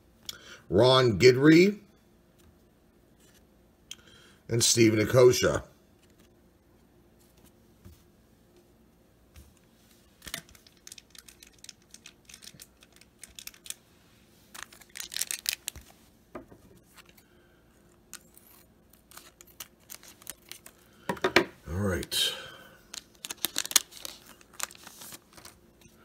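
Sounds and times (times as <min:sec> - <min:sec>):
card wrapper crinkling and clicking: 0:10.2 - 0:13.9, 0:14.5 - 0:16.0, 0:18.0 - 0:20.9, 0:22.8 - 0:25.9.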